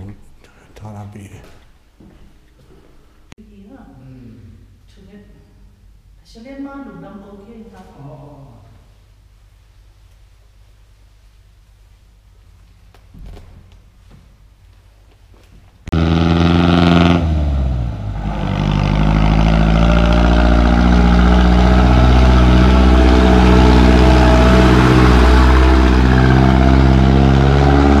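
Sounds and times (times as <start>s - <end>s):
vehicle engine droning: 15.9s - 28.0s.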